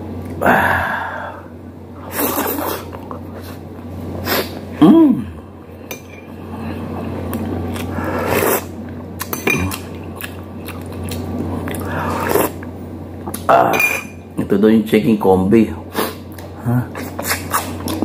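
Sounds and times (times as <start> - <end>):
steady low hum: 0.0 - 18.0
man chewing: 2.0 - 4.7, 5.4 - 13.5, 16.0 - 18.0.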